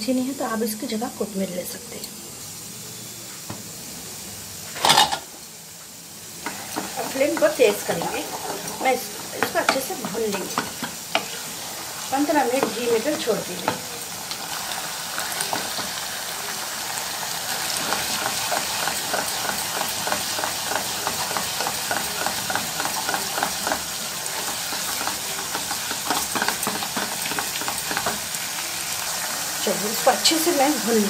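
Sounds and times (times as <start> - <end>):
minced meat sizzling in a pot: 0.0 - 31.0
wooden spatula scraping a pot: 6.4 - 13.8.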